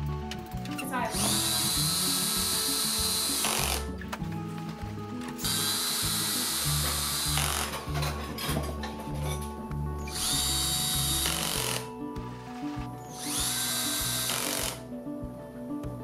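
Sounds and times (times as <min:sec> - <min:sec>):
cordless drill driving screws: 0:01.2 - 0:04.0, 0:05.4 - 0:07.9, 0:10.1 - 0:11.9, 0:12.5 - 0:14.8.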